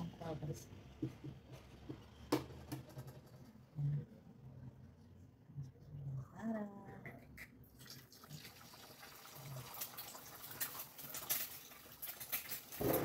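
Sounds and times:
egg sizzling in frying pan: 8.2 - 13.0.

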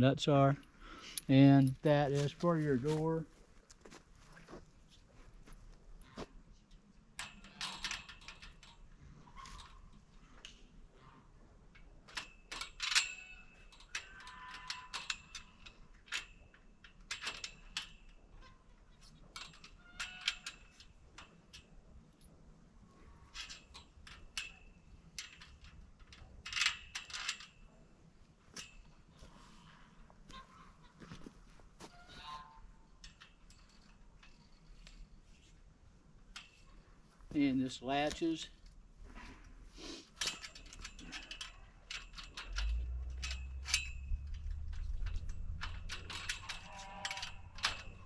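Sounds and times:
metal clinks on metal tubing: 40.2 - 48.0
metal latch clicking: 40.2 - 48.0.

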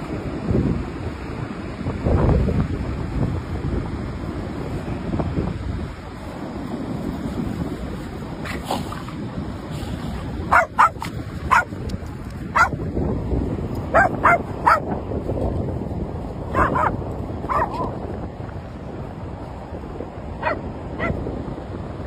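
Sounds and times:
wind: 0.0 - 22.0
dog yipping and barking: 10.5 - 11.8, 12.5 - 12.8, 13.9 - 14.9, 16.5 - 17.9, 20.4 - 21.2.

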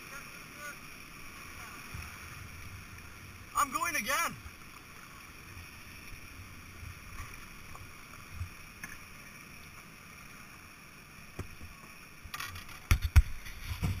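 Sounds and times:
white water rushing: 0.0 - 12.5
kayak knocking on rocks: 12.3 - 14.0.

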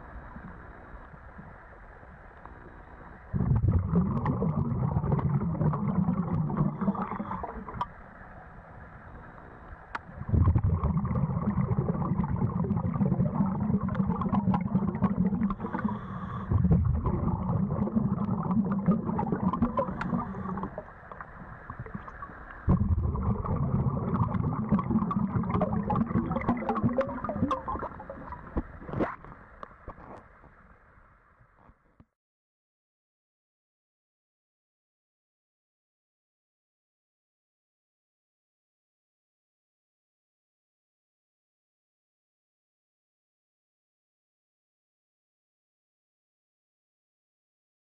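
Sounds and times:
underwater gurgling and bubbles: 0.0 - 31.6.

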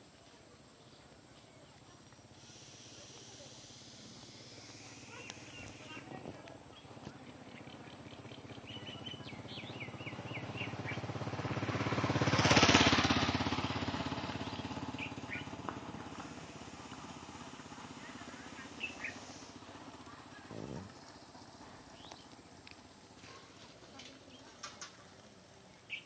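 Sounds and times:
birds chirping: 0.8 - 11.1, 14.1 - 15.6, 17.7 - 22.6, 25.6 - 26.0
motorcycle engine passing by: 1.6 - 26.0.

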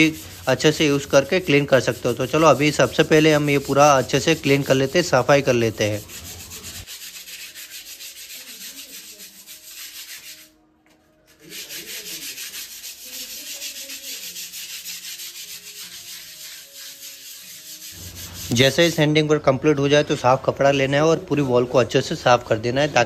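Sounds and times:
sandpaper rasping on plaster wall: 0.0 - 10.6, 11.3 - 19.1.

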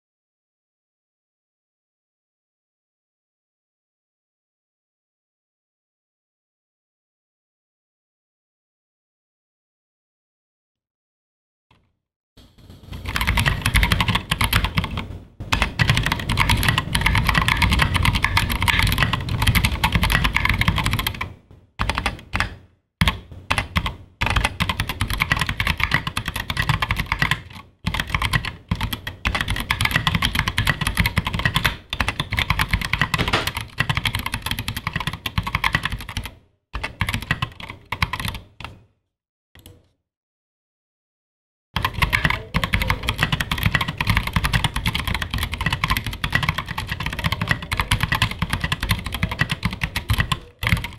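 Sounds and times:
typing on mechanical keyboard: 12.9 - 38.8, 41.8 - 50.9.

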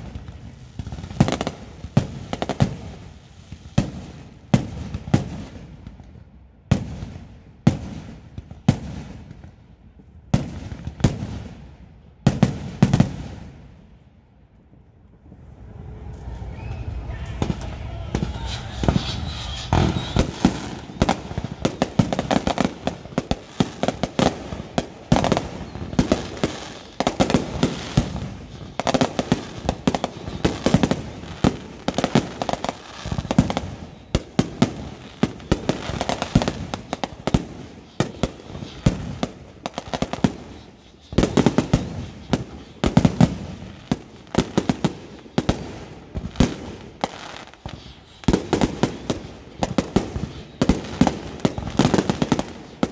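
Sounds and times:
firecrackers banging and popping: 14.5 - 52.9.

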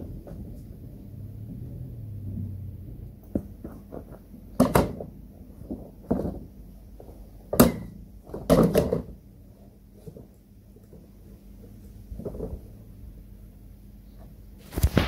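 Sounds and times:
low hum: 0.0 - 4.1.

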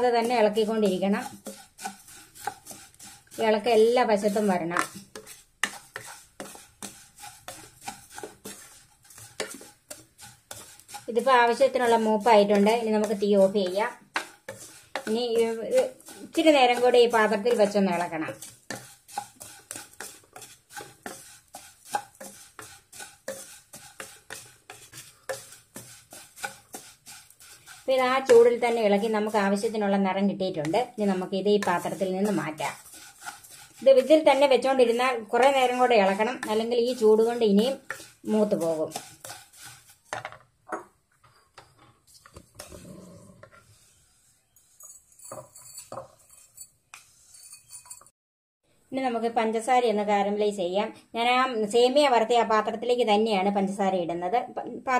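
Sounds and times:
wooden spatula scraping a pan: 0.0 - 48.2
spatula knocking on frying pan: 11.9 - 29.1.

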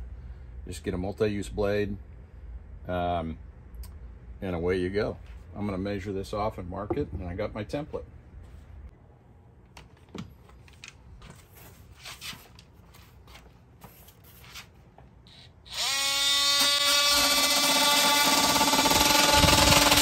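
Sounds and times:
handling clicks and rustles: 9.6 - 14.2
oscillating multi-tool whine: 15.3 - 20.0.

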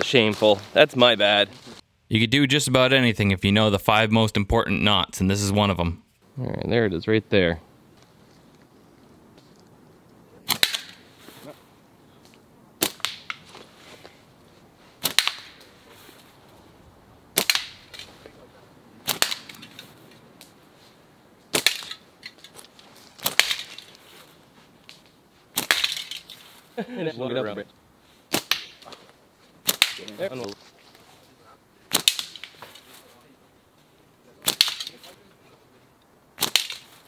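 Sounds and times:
slingshot rubber band cracks: 29.7 - 30.2, 34.4 - 35.0, 36.4 - 36.9.

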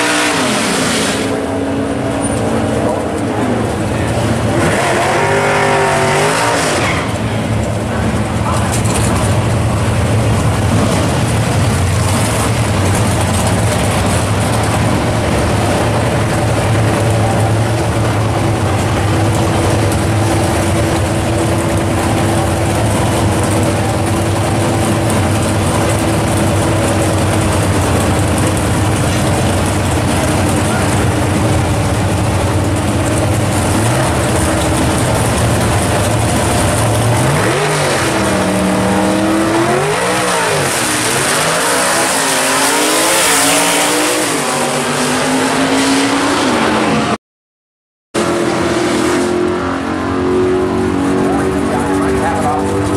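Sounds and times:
drag car engines idling and revving: 0.0 - 47.2, 48.2 - 52.9.

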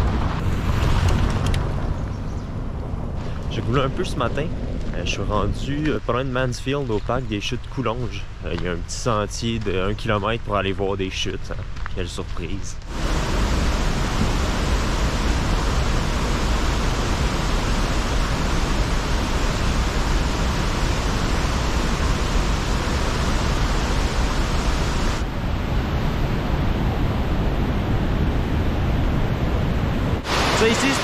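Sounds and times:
whitewater rushing over a spillway: 12.9 - 25.3, 30.2 - 31.0.

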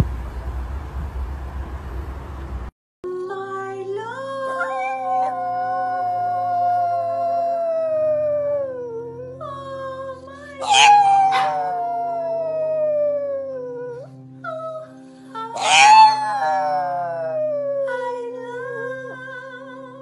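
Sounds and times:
dog howling: 4.5 - 9.4, 10.6 - 14.1, 15.6 - 19.3.

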